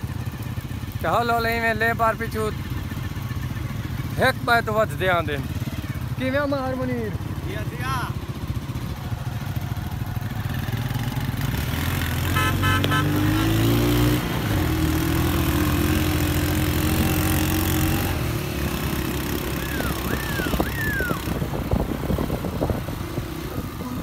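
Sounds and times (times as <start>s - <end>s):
motorcycle engine running: 0.0s - 24.0s
horn beeps: 12.3s - 13.7s.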